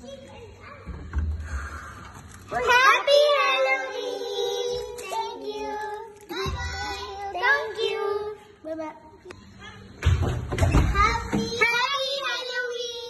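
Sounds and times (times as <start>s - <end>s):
children singing: 2.6s - 8.5s.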